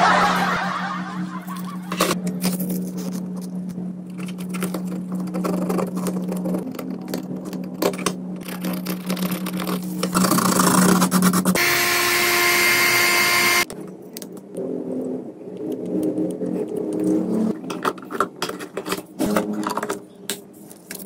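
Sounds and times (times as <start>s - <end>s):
tools clicking and scratching: 15.6s - 21.0s.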